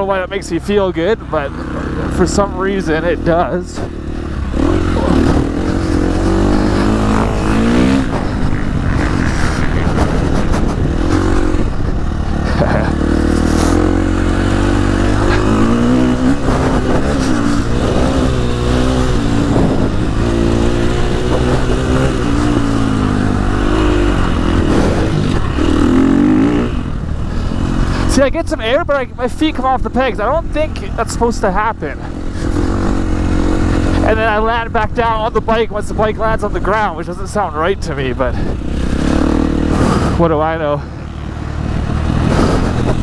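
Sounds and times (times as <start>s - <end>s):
dirt bike engine revving: 0.0s - 43.0s
wind on microphone: 3.8s - 26.0s, 41.6s - 43.0s.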